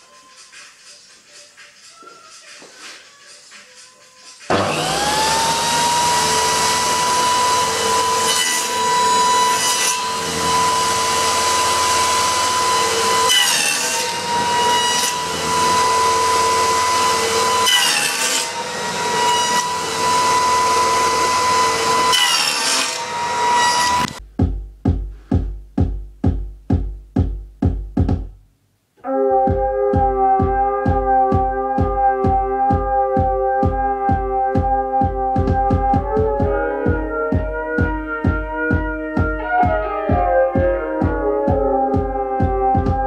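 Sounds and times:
power saw whining cutting wood: 0:04.5 - 0:24.2.

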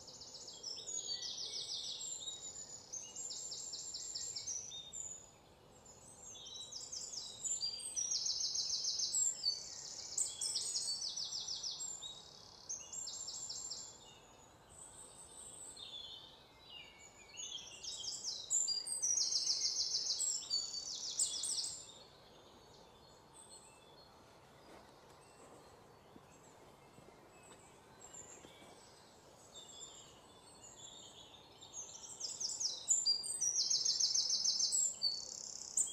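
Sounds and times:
background hiss: 0:00.0 - 0:35.9
birds singing trilled phrases: 0:15.4 - 0:22.1.

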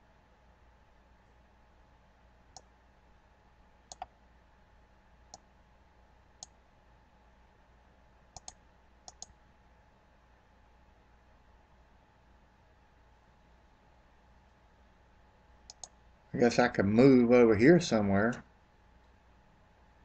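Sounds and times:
faint background hiss: 0:00.0 - 0:20.0
computer mouse clicking: 0:03.9 - 0:04.2, 0:08.4 - 0:09.4, 0:15.6 - 0:16.0.

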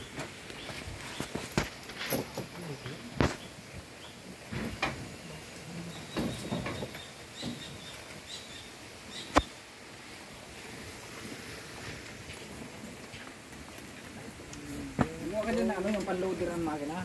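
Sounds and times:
outdoor background noise: 0:00.0 - 0:17.0
chain links clinking: 0:01.3 - 0:02.8.

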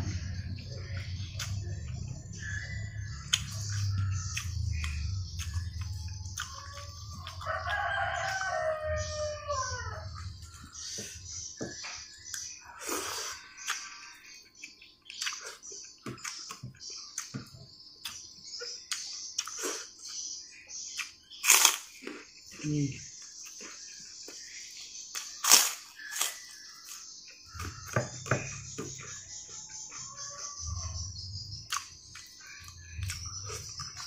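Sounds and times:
wet chewing and lip smacking: 0:14.6 - 0:17.3.

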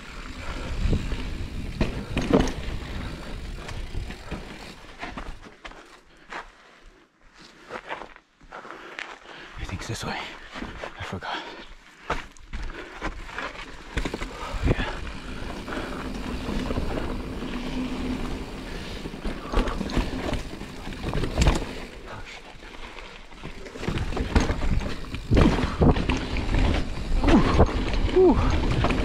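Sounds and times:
tyre and wind rumble: 0:00.0 - 0:05.0, 0:23.4 - 0:29.0
bike knocking and rattling: 0:00.0 - 0:05.9, 0:12.0 - 0:29.0.

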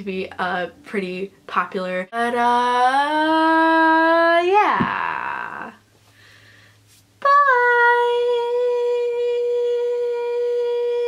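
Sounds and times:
woman singing a long high note: 0:07.2 - 0:11.0.

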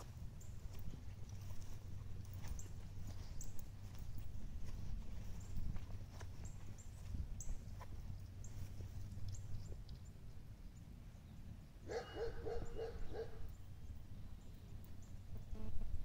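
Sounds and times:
dog barking: 0:11.9 - 0:13.5.

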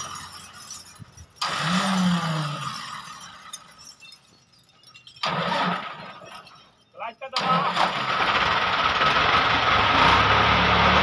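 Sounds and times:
tractor diesel engine under load: 0:00.0 - 0:03.8, 0:05.2 - 0:06.4, 0:07.3 - 0:11.0.

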